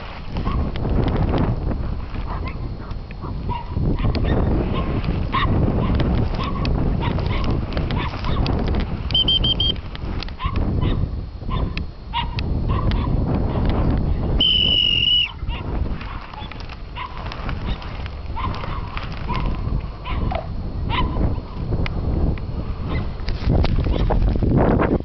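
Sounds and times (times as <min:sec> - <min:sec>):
constant low rumble: 0:00.0 - 0:25.0.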